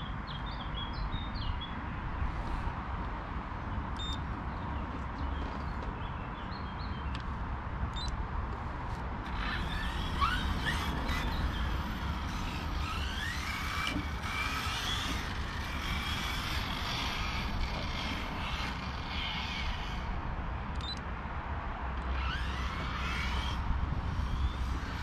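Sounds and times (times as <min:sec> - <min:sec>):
electric motor whining: 0:09.2 - 0:20.2, 0:22.0 - 0:25.0.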